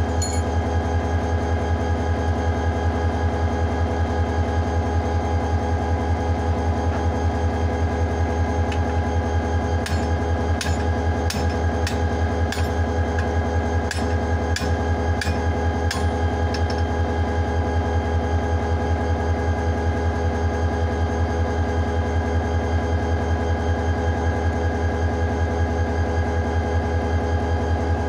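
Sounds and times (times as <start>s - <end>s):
diesel locomotive idling: 0.0s - 19.0s
sharp metallic knocks: 9.8s - 13.3s.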